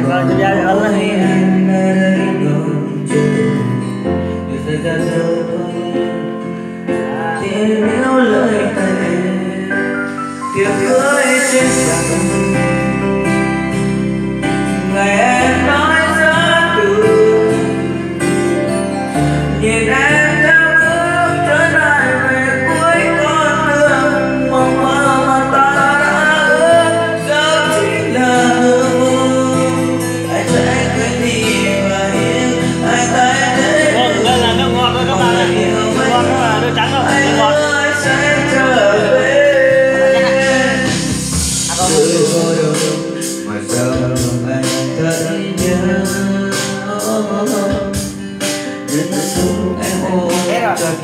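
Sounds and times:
karaoke ballad backing music: 0.0 - 51.0.

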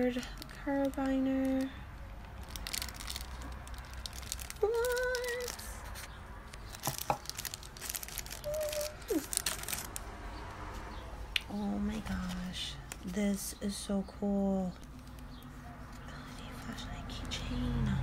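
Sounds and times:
plastic packaging crinkling: 0.0 - 10.2.

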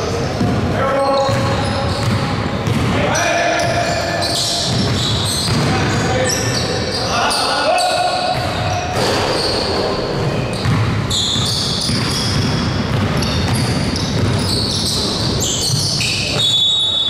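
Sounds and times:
sneaker squeaks: 0.0 - 17.0
voices echoing in a hall: 0.0 - 17.0
basketball bouncing on wooden floor: 1.2 - 3.0, 4.7 - 5.8, 8.3 - 16.0.

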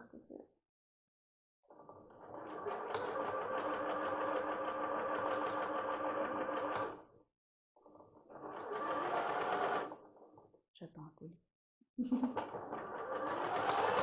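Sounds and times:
sewing machine stitching: 1.7 - 7.1, 7.8 - 10.4, 12.3 - 14.0.

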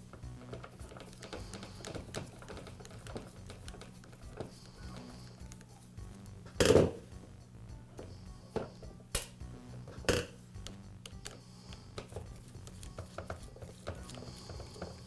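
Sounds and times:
screwdriver clicking on screws: 0.4 - 5.6.

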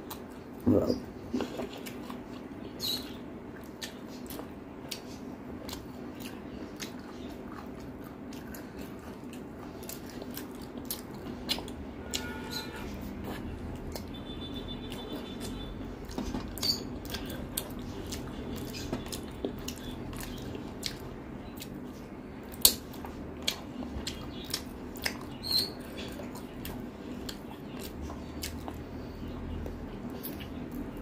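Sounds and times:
chewing and sucking: 3.5 - 12.2, 16.3 - 21.9.

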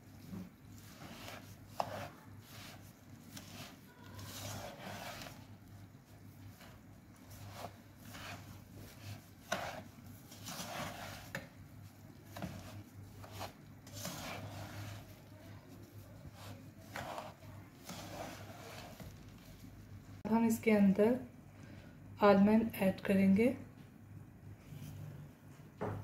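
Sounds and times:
spatula scraping in a pan: 0.1 - 19.6.

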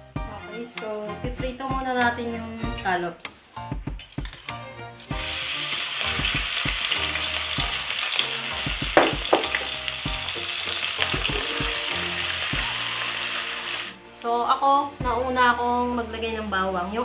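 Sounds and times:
scallops sizzling in hot oil: 5.1 - 14.0
sharp knocks: 9.0 - 9.7.

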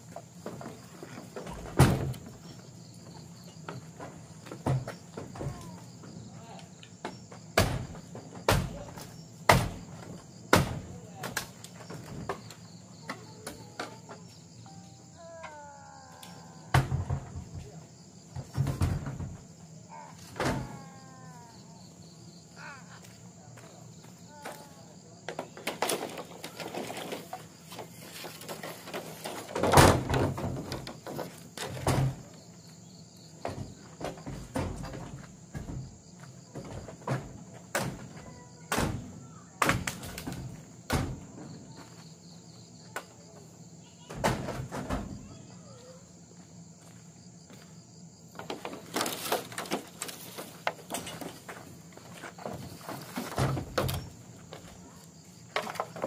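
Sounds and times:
high-pitched insect drone: 12.4 - 17.0.

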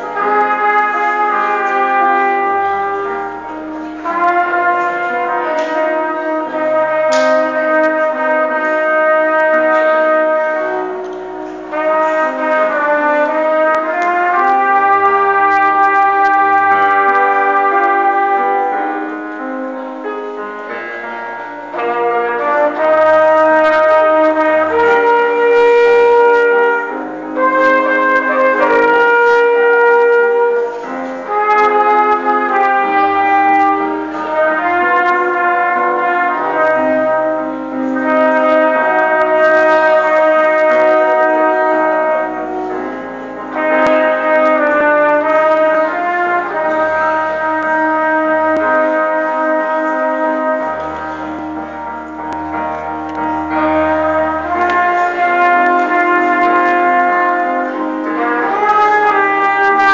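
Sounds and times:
wind band playing slow piece: 0.0 - 59.9.

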